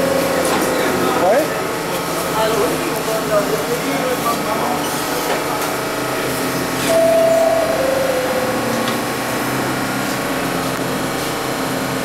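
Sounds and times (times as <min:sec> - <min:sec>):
subway car equipment humming: 0:00.0 - 0:12.0
two-note falling chime: 0:06.9 - 0:09.0.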